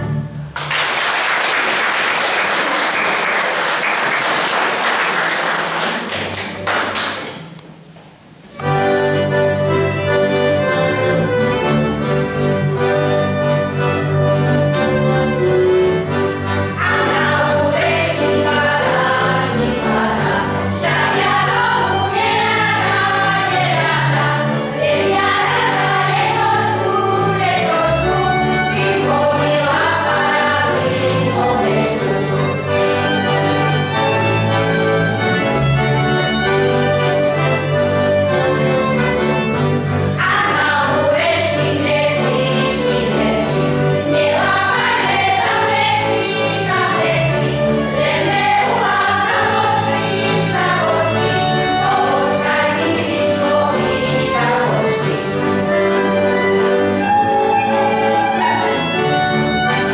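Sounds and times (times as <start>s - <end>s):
applause: 0.6s - 7.4s
folk band playing: 7.2s - 59.9s
women's choir singing: 16.3s - 33.0s, 40.1s - 59.9s.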